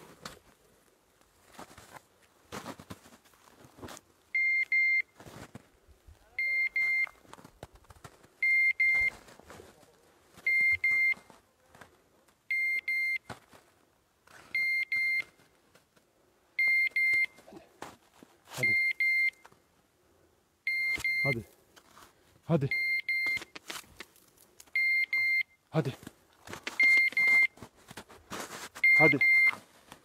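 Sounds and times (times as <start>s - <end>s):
short high beeps: 6.4s - 7.2s, 10.5s - 11.2s, 16.6s - 17.4s, 18.6s - 19.4s, 20.7s - 21.5s, 22.6s - 23.5s, 24.8s - 25.6s, 26.8s - 27.5s, 28.8s - 29.6s.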